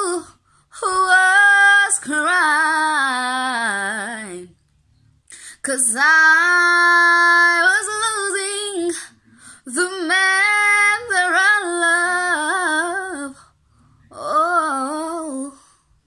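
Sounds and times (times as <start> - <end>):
woman singing unaccompanied: 0.0 - 4.6, 5.5 - 13.5, 14.1 - 15.8
breaths: 0.4 - 0.8, 5.2 - 5.6, 9.0 - 9.7, 13.4 - 14.1.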